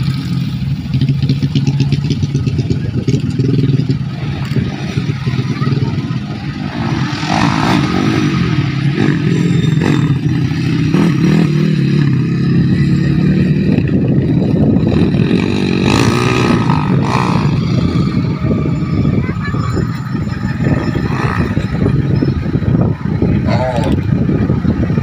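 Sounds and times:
motocross motorcycles revving: 0:00.0 - 0:25.0.

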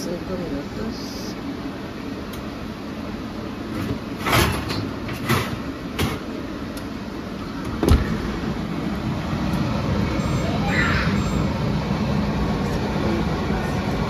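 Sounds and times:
steady low hum: 0:00.0 - 0:14.0
oven door shutting thump: 0:07.7 - 0:08.4.

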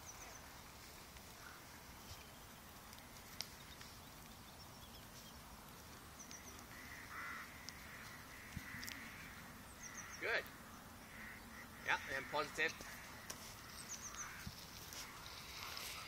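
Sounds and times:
distant bird calls: 0:00.0 - 0:16.0
faint ticks: 0:07.5 - 0:09.3.

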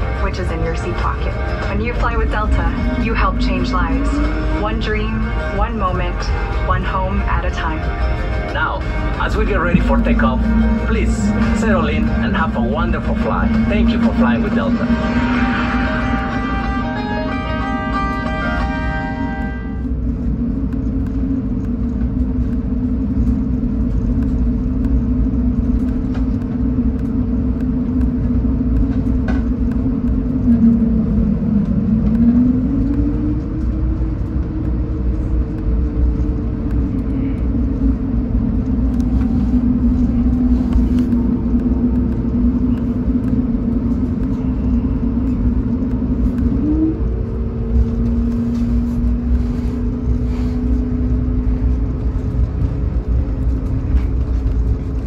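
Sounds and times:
aircraft cabin rumble: 0:00.0 - 0:55.0
jet engines humming: 0:00.0 - 0:55.0.

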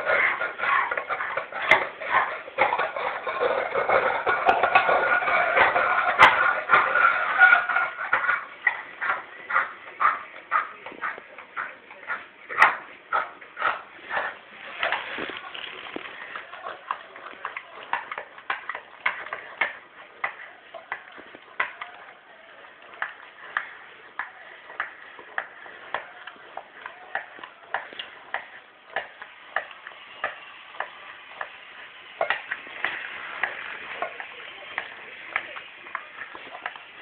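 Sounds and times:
dog licking: 0:00.0 - 0:37.0.

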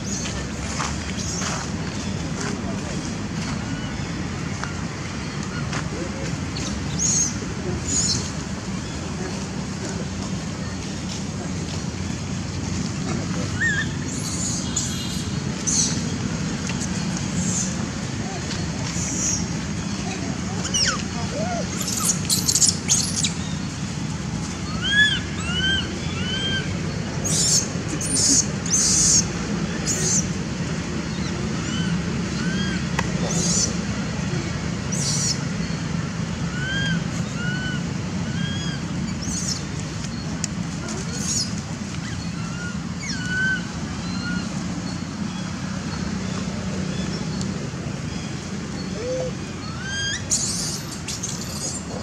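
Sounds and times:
low rumble and hiss: 0:00.0 - 0:52.0
high squeaky calls: 0:19.0 - 0:23.4, 0:48.8 - 0:52.0
whistled calls: 0:36.5 - 0:40.4, 0:41.0 - 0:46.0, 0:48.1 - 0:51.9.

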